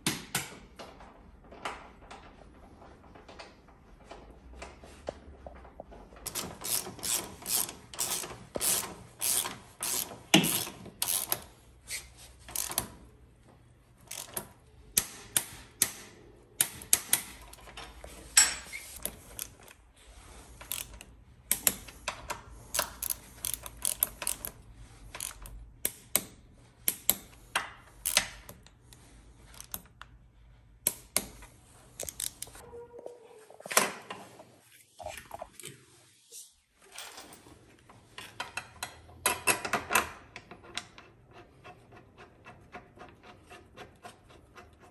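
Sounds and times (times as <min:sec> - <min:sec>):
ratchet wrench clicking: 0:06.3 - 0:11.5, 0:12.5 - 0:12.9, 0:14.1 - 0:15.5, 0:20.6 - 0:21.8, 0:22.7 - 0:24.6, 0:25.2 - 0:26.3, 0:32.0 - 0:32.6.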